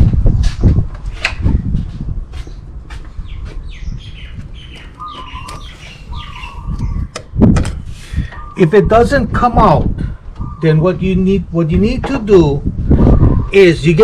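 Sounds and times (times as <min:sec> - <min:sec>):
bird chirping: 0:02.4 - 0:09.0, 0:10.3 - 0:11.4.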